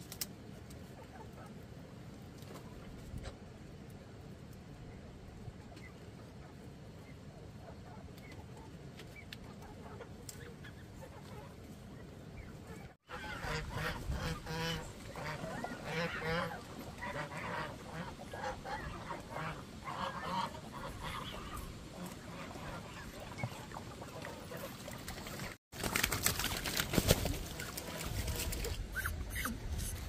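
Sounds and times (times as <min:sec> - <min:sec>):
ducks quacking: 0:12.6 - 0:25.5.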